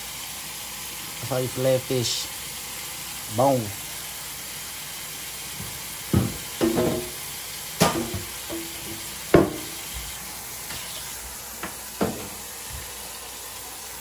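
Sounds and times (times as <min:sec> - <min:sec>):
tap water running into sink: 0:02.3 - 0:14.0
boards knocking in sink: 0:05.6 - 0:07.2, 0:07.8 - 0:10.1, 0:11.6 - 0:12.4.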